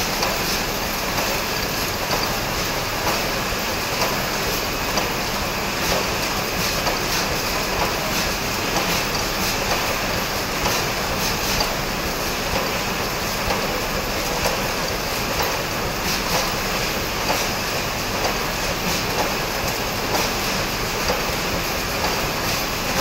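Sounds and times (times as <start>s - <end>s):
production-line machines clattering: 0.0s - 23.0s.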